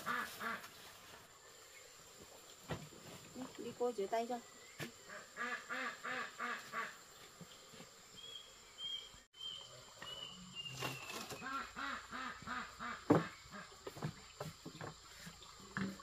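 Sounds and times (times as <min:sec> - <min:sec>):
duck quacking: 0:05.1 - 0:07.0, 0:11.5 - 0:13.3.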